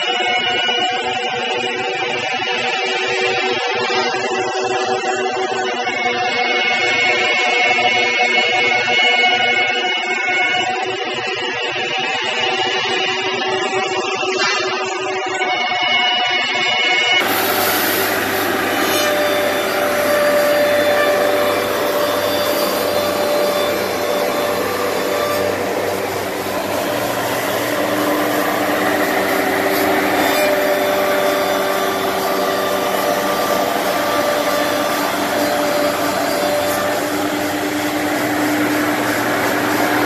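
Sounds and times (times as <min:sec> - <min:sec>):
dust extraction drawing air: 0:17.2 - 0:40.0
faint steady whines: 0:17.2 - 0:40.0
router spindle cutting foam: 0:17.2 - 0:40.0.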